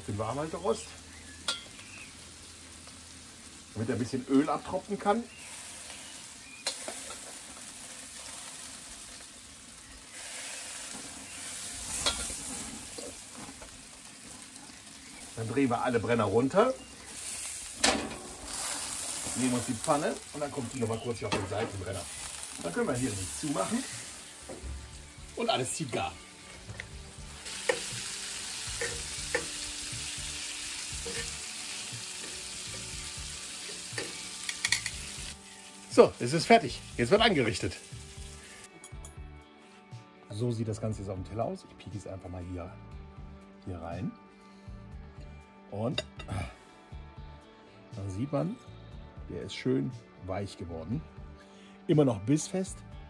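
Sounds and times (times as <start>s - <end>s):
food sizzling in pans: 0.0s - 38.9s
metal tongs clicking on pan: 1.5s - 1.7s, 6.6s - 7.3s, 11.9s - 12.4s, 27.5s - 27.9s, 28.8s - 29.6s, 31.0s - 31.4s, 33.7s - 35.0s.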